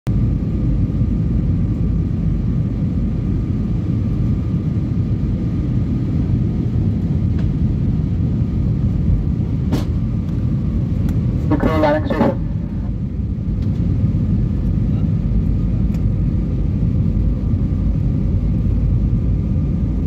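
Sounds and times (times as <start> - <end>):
jet engine roar in cabin: 0.1 - 20.0
faint steady hum: 11.0 - 13.3.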